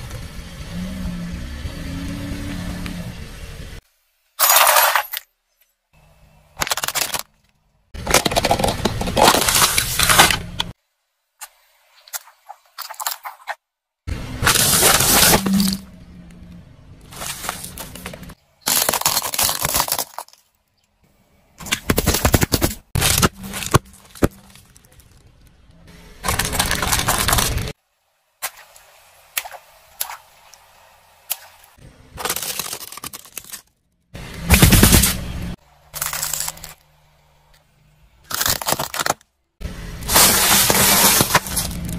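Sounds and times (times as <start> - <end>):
pellets crunching and rattling: 8.0 - 10.4, 14.4 - 15.8, 17.1 - 20.4, 21.7 - 25.3, 26.2 - 27.8, 32.2 - 33.7, 35.9 - 36.8, 38.3 - 39.2, 40.1 - 41.9
tyre crushing objects: 14.4 - 15.8, 17.1 - 20.4, 21.6 - 24.9, 34.4 - 36.7, 40.1 - 41.9.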